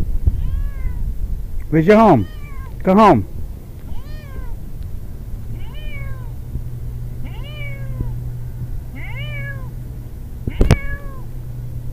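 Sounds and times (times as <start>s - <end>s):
cat meowing: 0.3s - 1.1s, 1.9s - 2.8s, 3.8s - 4.6s, 5.5s - 6.4s, 7.2s - 8.2s, 8.9s - 9.8s, 10.5s - 11.3s.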